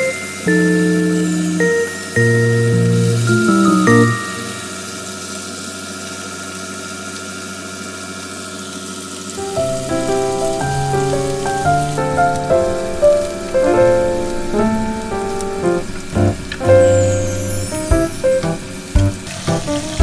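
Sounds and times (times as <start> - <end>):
light melodic music: 0.0 - 4.9, 9.4 - 20.0
steaks sizzling in frying pan: 0.0 - 5.0, 9.2 - 20.0.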